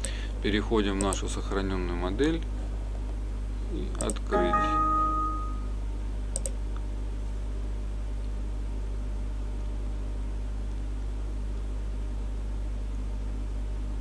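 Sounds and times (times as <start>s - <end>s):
low electrical hum: 0.0s - 14.0s
computer mouse clicks: 4.0s - 4.2s, 6.3s - 6.6s.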